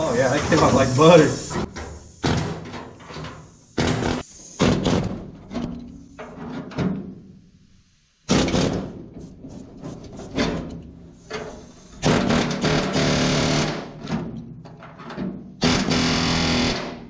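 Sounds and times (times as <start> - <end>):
air hammer cutting metal: 0.5 - 5.1, 12.0 - 14.0, 15.6 - 17.0.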